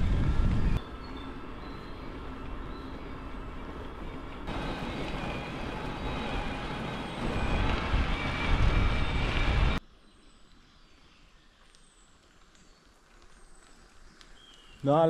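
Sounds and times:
deep rumble: 0.0s - 0.8s, 4.5s - 9.8s
wind on microphone: 0.0s - 0.8s, 4.5s - 9.8s
bike riding rush: 0.0s - 9.8s.

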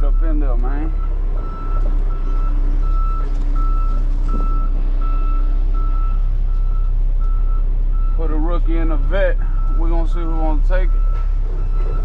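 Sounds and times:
diesel engine running: 0.0s - 12.0s
truck backup alarm beeping: 0.0s - 12.0s.

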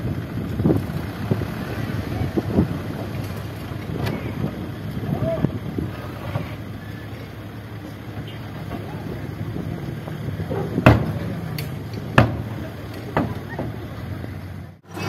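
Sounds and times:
diesel truck engine running: 0.0s - 15.0s
sharp bangs: 10.8s - 13.8s.

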